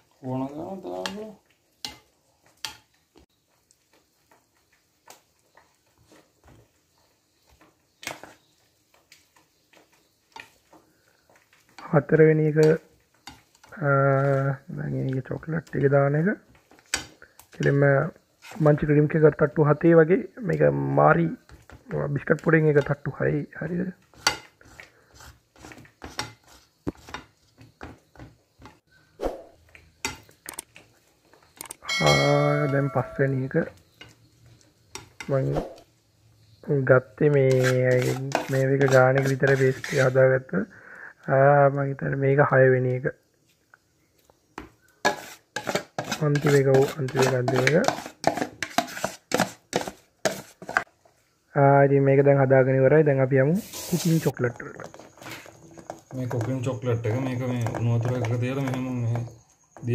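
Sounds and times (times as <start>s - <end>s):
spoon tapping glass bowl: 31.8s - 33.2s
spoon scraping glass dish: 37.5s - 40.2s, 45.0s - 50.8s.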